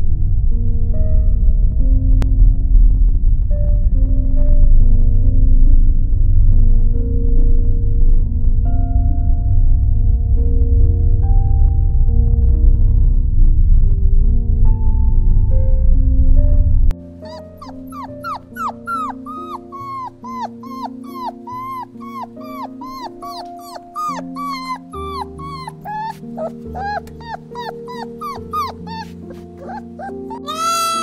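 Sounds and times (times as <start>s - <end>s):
loud low drone: 0.0s - 16.9s
soft background music: 0.0s - 31.0s
dog yipping and whimpering: 17.2s - 31.0s.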